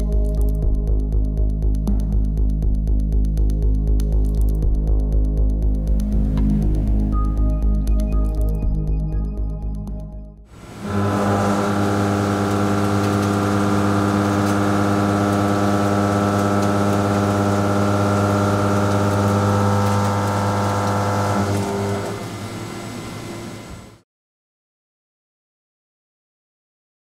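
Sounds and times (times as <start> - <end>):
milling machine cutting hum: 10.5 - 24.0.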